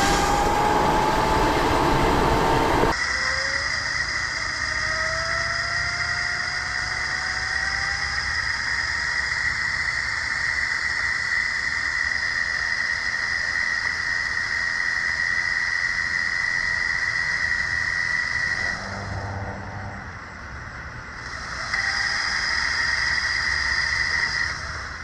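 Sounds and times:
electric motor and chain whining: 0.0 - 3.0.

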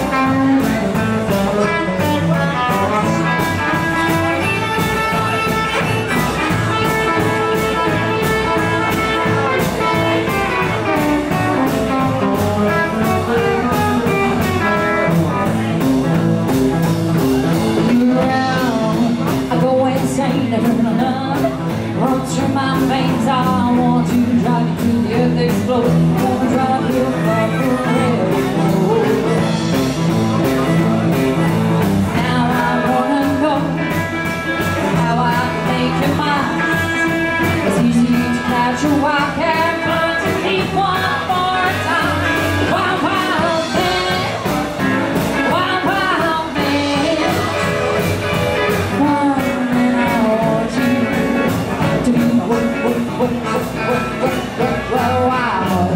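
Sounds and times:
person singing: 0.0 - 16.2, 17.2 - 55.9
live blues rock band: 0.0 - 55.9.

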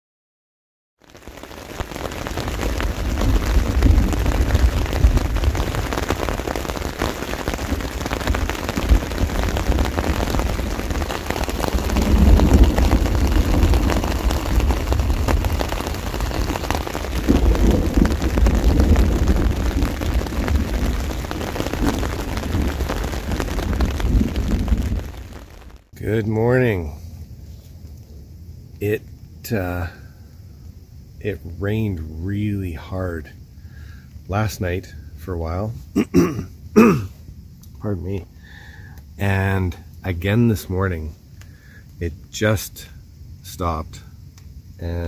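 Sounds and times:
heavy rain: 1.0 - 27.6, 28.8 - 30.3, 31.2 - 44.1
deep rumble: 2.2 - 26.0.

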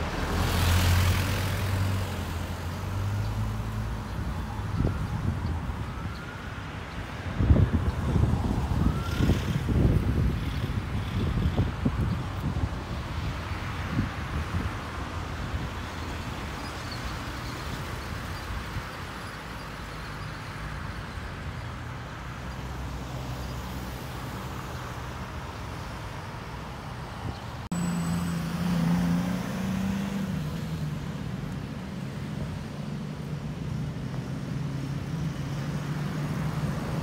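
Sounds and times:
cars passing: 0.0 - 37.0
vehicle engine humming: 26.0 - 37.0.

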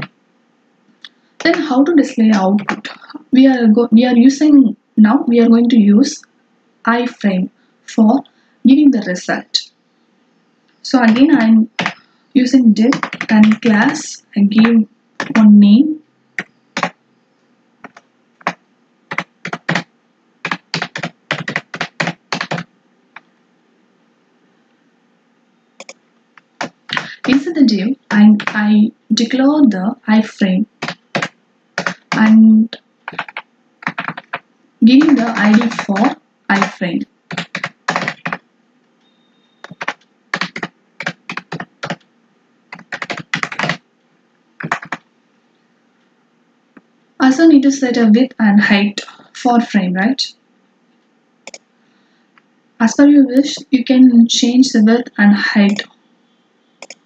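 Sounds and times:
computer keyboard typing: 1.4 - 3.1, 11.0 - 12.0, 12.8 - 15.5, 16.4 - 17.0, 17.8 - 23.3, 25.8 - 28.8, 30.7 - 32.5, 33.1 - 38.4, 39.6 - 42.0, 42.7 - 43.8, 44.6 - 45.0, 51.4 - 51.6, 55.7 - 55.9, 56.8 - 57.0.

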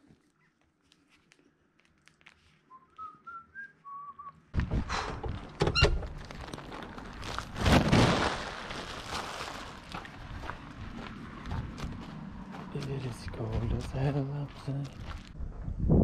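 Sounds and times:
rustling and handling noise: 0.0 - 3.3, 5.3 - 10.6
person whistling a tune: 2.7 - 4.4.

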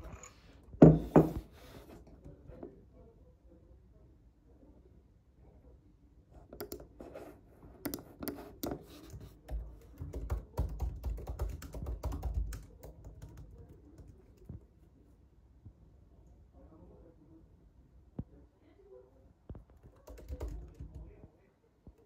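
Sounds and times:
laptop keyboard typing: 6.6 - 6.9, 7.8 - 14.6, 19.8 - 21.2.

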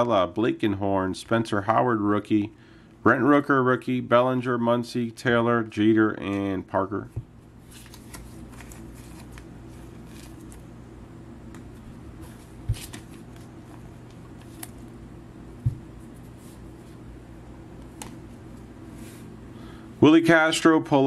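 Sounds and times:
steady low hum: 0.0 - 21.0
cards sliding and ticking: 7.7 - 10.6, 11.5 - 14.9.

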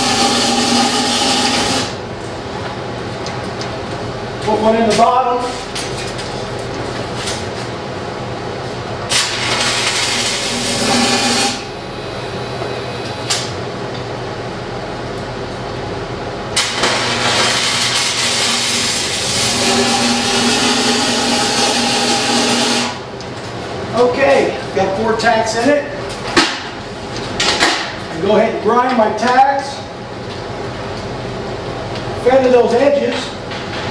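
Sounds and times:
welding arc sizzling: 0.0 - 2.0, 9.1 - 13.5, 16.6 - 23.0
welding snap: 16.6 - 19.0.

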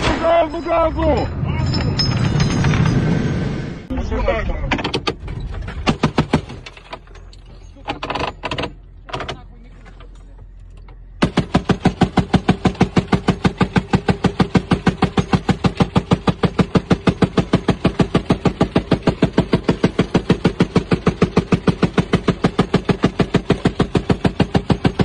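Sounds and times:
heavy machine gun firing burst: 11.2 - 25.0.

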